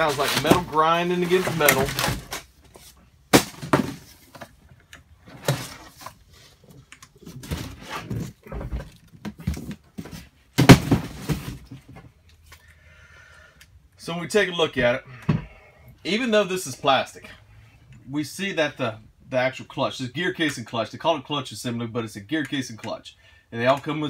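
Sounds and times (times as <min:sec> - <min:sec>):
box knocks: 0:10.6 - 0:11.7.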